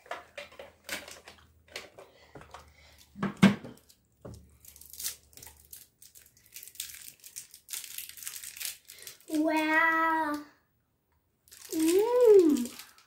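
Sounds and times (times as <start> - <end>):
foil wrapper crinkling and tearing: 3.7 - 10.4, 11.4 - 13.0.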